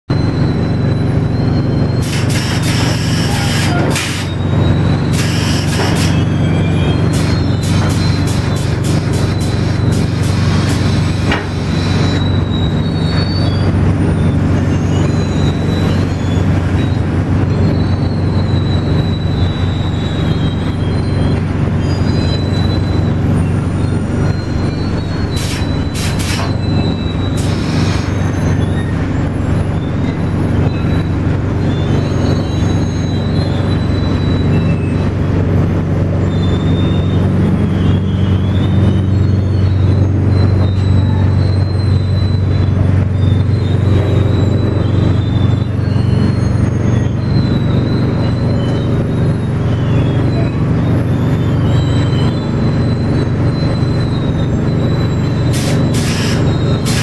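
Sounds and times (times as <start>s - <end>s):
faint high wavering squeal: 0.1s - 57.0s
machinery drone: 0.1s - 57.0s
short hisses: 55.5s - 57.0s.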